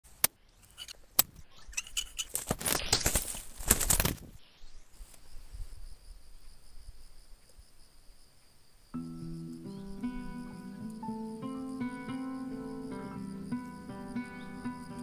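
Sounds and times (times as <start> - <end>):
high insect buzz: 1.5 - 15.0
bird wings flapping: 1.8 - 4.4.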